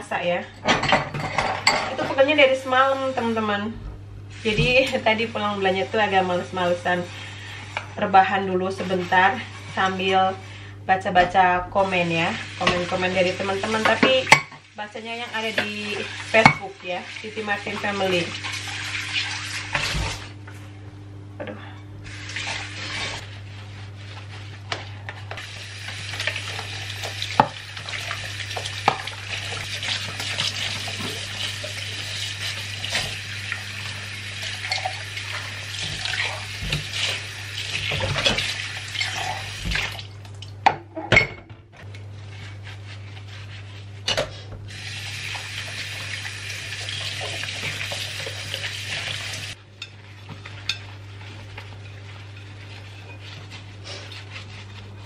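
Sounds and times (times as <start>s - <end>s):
dishes clinking against sink: 0.6s - 2.3s, 40.6s - 41.6s
tap water splashing into sink: 25.9s - 31.9s, 32.8s - 40.8s.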